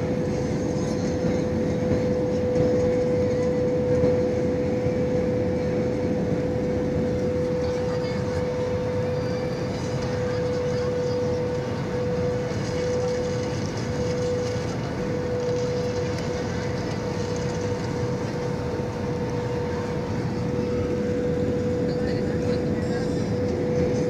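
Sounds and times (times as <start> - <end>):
airliner cabin engine roar: 0.0 - 24.0
constant mid-pitched hum: 0.0 - 24.0.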